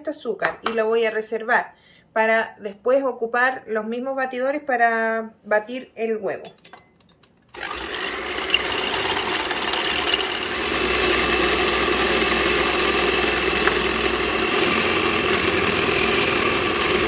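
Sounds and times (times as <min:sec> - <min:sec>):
electric hand mixer whipping: 0:07.6 - 0:17.0.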